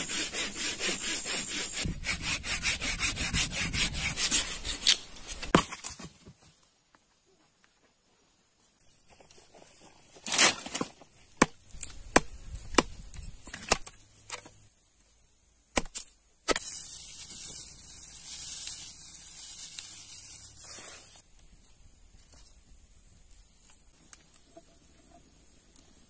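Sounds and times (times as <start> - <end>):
straw rustling: 16.5 - 21.2.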